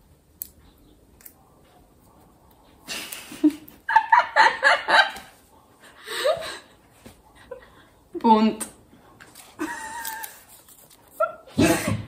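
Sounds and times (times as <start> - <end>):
women laughing: 2.9 - 6.8, 9.6 - 10.4
paper crinkling: 9.2 - 11.4.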